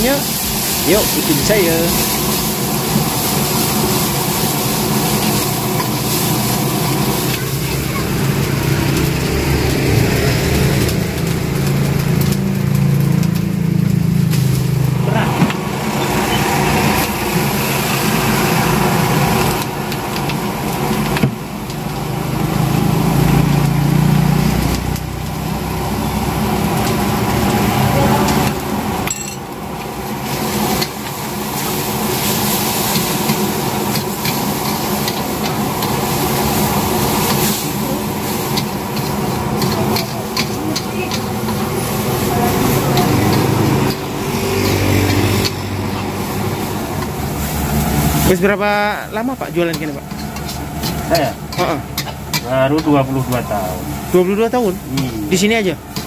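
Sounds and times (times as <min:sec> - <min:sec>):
food sizzling: 0:00.0 - 0:56.0
gas burner rushing: 0:00.0 - 0:56.0
metal spatula scraping a wok: 0:38.3 - 0:46.4, 0:49.7 - 0:53.0.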